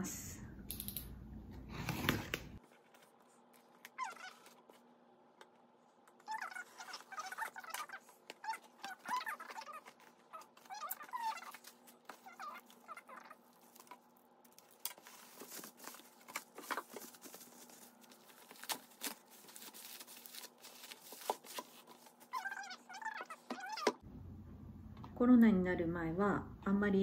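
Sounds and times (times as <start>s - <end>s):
bubble wrap rustling: 6.4s - 23.8s.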